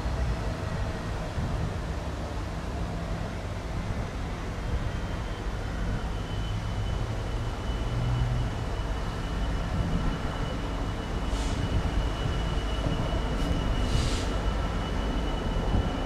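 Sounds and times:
locomotive engine rumble: 0.0 - 16.0.

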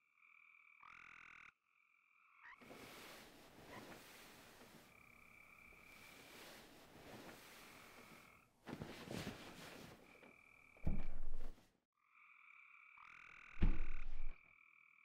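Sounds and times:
loud rough croaks: 13.4 - 14.4.

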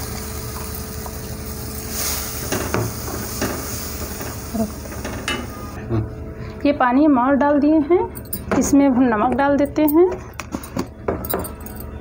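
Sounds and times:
sizzling hiss: 0.0 - 5.8.

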